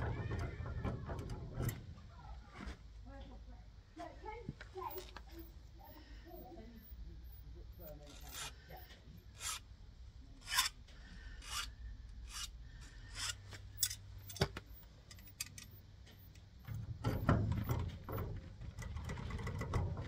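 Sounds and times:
scraping and rattling in lock: 0.0 - 2.0, 13.8 - 20.0.

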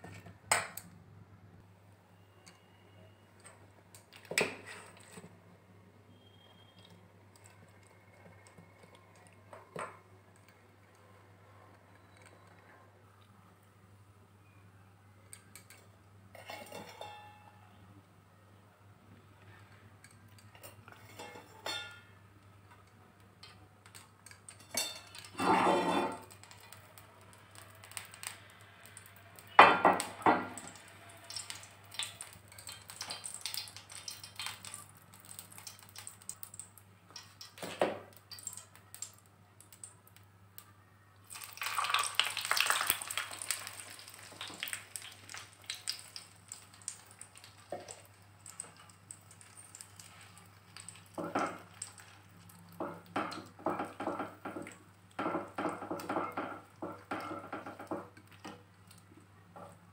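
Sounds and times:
utensil scraping frying pan: 24.6 - 26.5.

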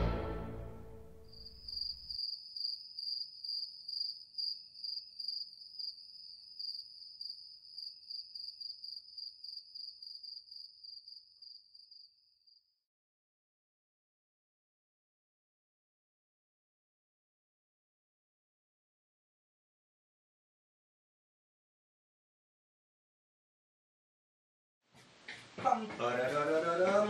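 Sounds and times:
orchestral chord: 0.0 - 1.5
cricket chirping: 1.0 - 12.8.

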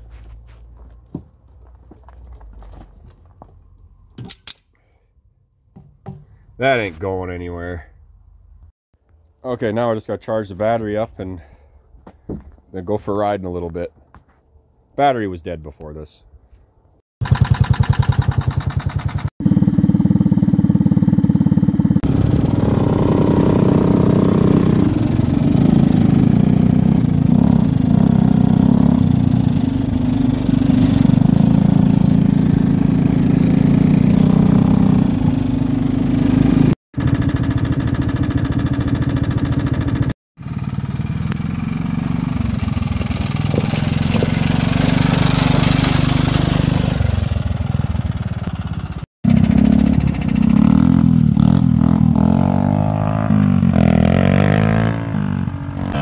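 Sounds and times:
off-road vehicle engines revving: 19.4 - 36.8, 40.7 - 47.8, 49.3 - 56.0.

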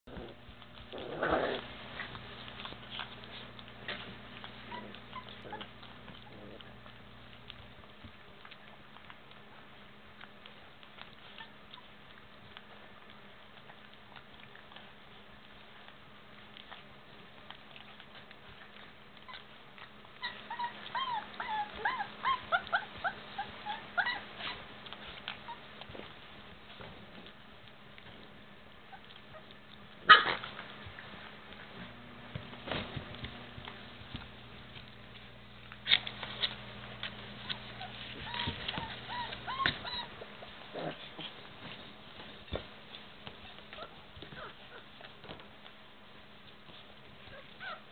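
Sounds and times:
puppy whimpering and yipping: 0.1 - 6.8, 18.7 - 26.0, 28.8 - 30.5, 37.4 - 41.0, 43.5 - 45.1, 47.2 - 47.9
paws scuffling and clicking: 0.1 - 47.9
puppies licking and eating: 0.1 - 47.9.

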